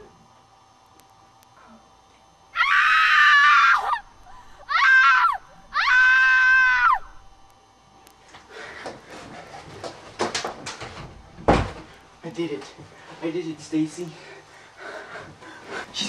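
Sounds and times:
woman screaming: 2.6s - 7.2s.

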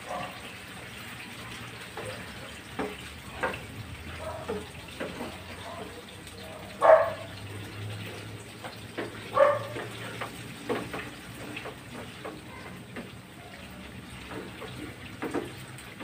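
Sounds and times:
coconut milk bubbling and sizzling: 0.0s - 16.0s.

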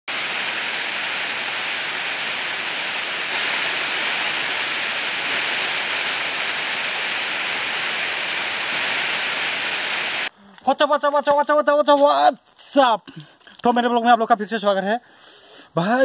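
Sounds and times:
waterfall rushing: 0.1s - 10.3s.

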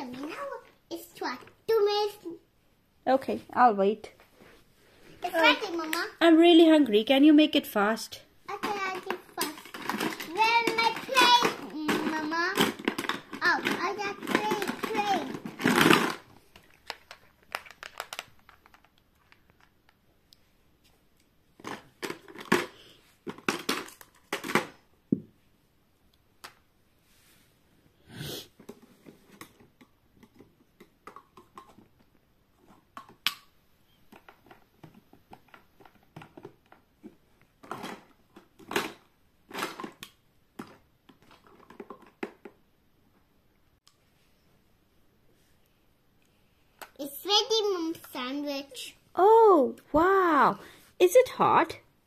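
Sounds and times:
plastic toy dishes clattering: 8.5s - 19.6s, 21.6s - 24.8s, 37.6s - 42.6s.

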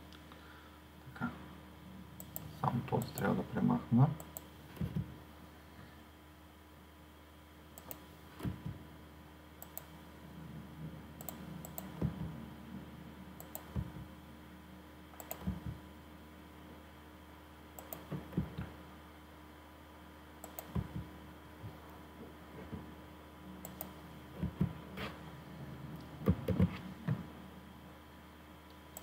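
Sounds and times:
faint electrical hum: 0.0s - 29.0s
computer mouse clicks: 2.2s - 3.3s, 4.2s - 4.5s, 7.8s - 8.6s, 9.6s - 9.9s, 11.2s - 12.2s, 13.4s - 13.9s, 15.2s - 15.8s, 17.8s - 18.7s, 20.4s - 21.1s, 23.6s - 24.6s.

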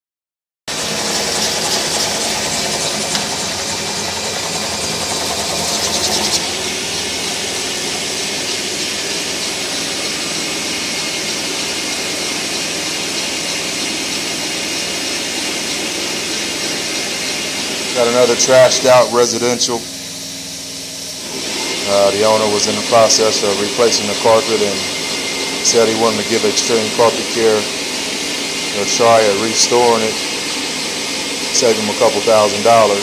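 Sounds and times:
carpet extractor whirring: 0.7s - 33.0s.

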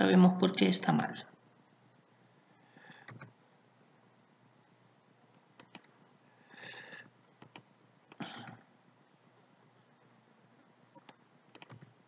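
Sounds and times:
mouse and keyboard clicks: 5.6s - 5.9s, 11.0s - 11.9s.

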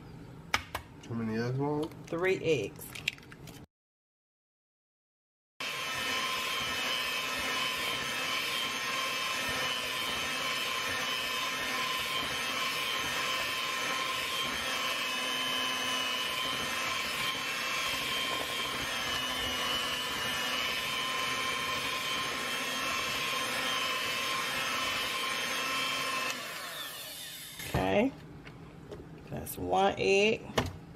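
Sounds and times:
beaters churning batter: 5.6s - 26.8s
electric hand mixer whining: 5.6s - 28.0s.

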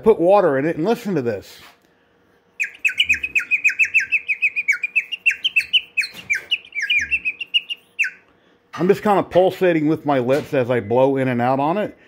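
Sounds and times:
water bird whistle trilling: 2.6s - 8.2s.

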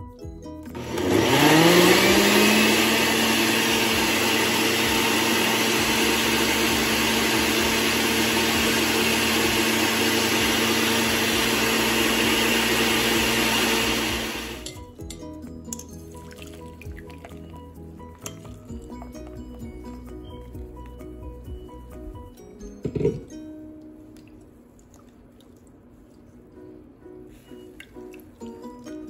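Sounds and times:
blender motor whining: 0.7s - 14.6s.

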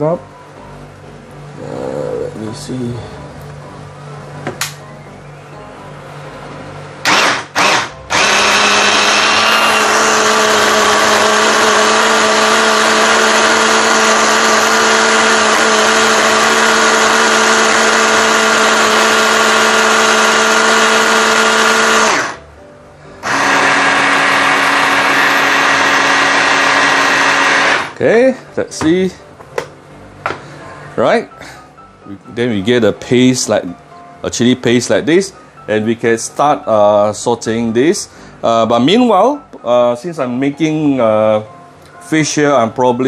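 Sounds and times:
electric chopper motor whirring: 7.0s - 22.4s, 23.2s - 28.0s.

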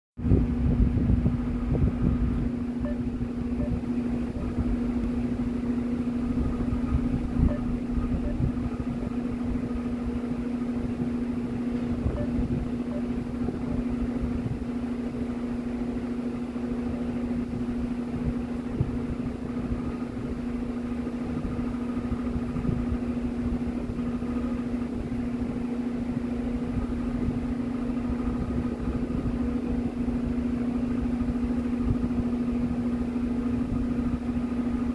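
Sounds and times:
machine humming: 1.4s - 17.4s.

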